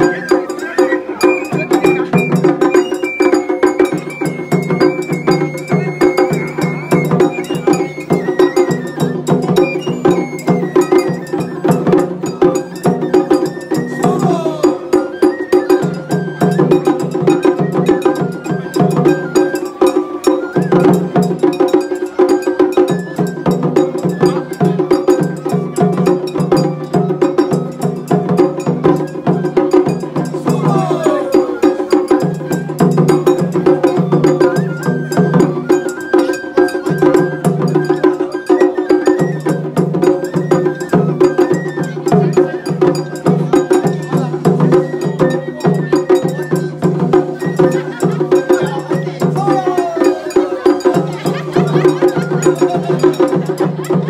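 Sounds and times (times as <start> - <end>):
high melody of held notes: 0.0 - 21.0
taiko drums beating fast: 0.0 - 54.0.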